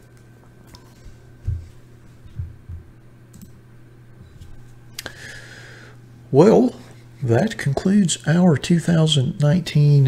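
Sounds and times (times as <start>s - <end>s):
low electrical hum: 0.0s - 10.0s
low thumps and light clicks: 1.4s - 3.5s.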